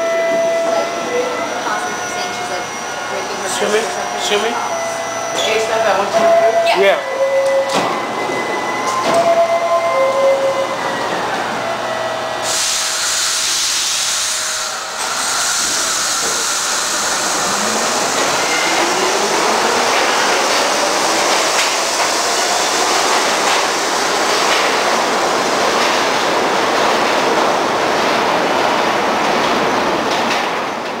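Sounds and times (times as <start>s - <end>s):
loud hiss: 12.4s - 18.5s.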